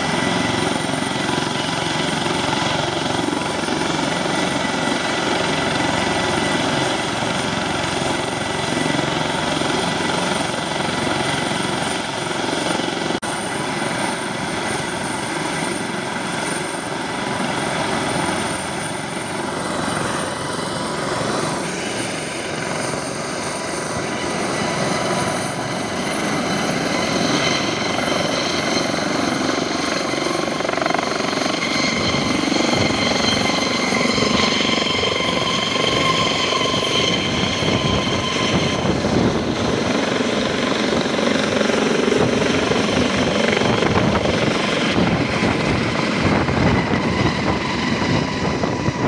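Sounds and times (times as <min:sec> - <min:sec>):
helicopter turbine whine: 0:00.0 - 0:49.0.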